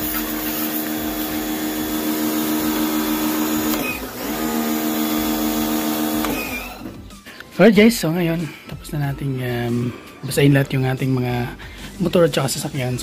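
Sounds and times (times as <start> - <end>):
water spray hissing: 0.0 - 3.8
pressure washer motor humming: 0.0 - 7.1.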